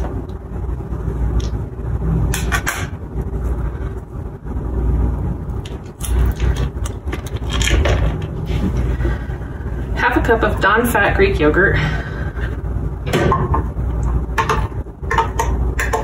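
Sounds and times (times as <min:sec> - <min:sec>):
low steady rumble: 0:00.0 - 0:16.0.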